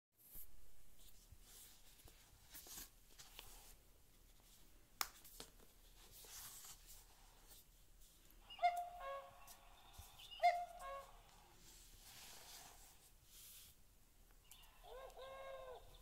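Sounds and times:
book handling rustles: 1.0 - 8.2
recorded bird call: 8.4 - 11.5, 14.4 - 16.0.

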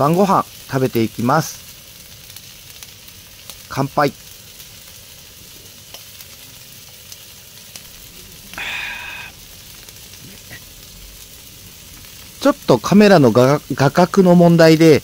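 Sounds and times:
meat sizzling on grill plate: 0.0 - 15.0.

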